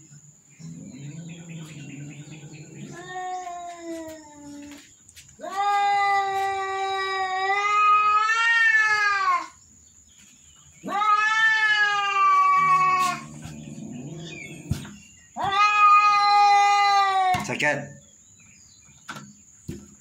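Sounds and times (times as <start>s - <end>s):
cat yowling: 1.0s - 4.7s, 5.4s - 9.6s, 10.8s - 14.8s, 15.4s - 17.4s.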